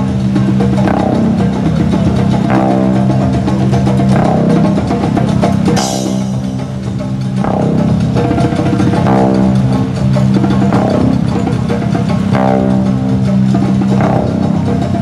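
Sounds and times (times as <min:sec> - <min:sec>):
instrumental background music: 0:00.0 - 0:15.0
bright cymbal crash: 0:05.8 - 0:07.4.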